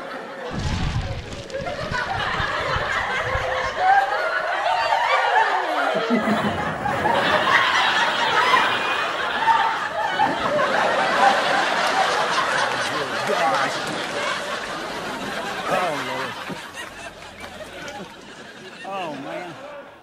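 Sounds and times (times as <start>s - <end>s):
people laughing: 0.0s - 20.0s.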